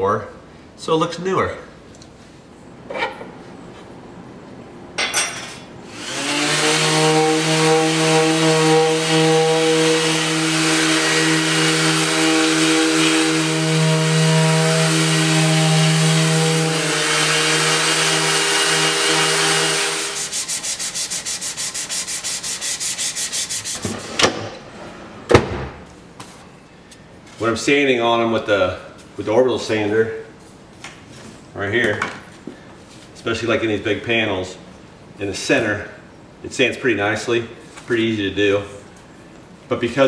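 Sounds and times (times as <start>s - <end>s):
orbital sander sanding wood: 5.9s - 24.2s.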